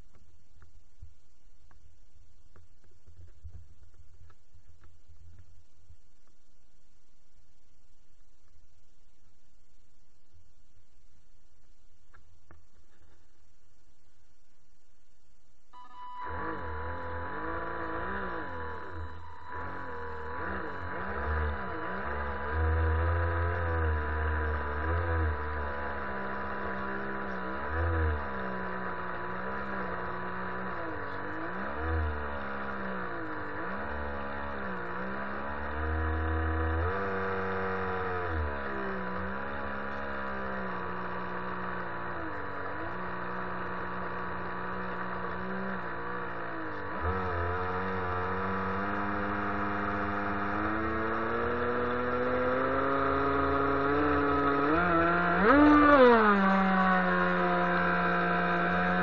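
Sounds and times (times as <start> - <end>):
model boat motor and propeller: 16.2 - 59.0.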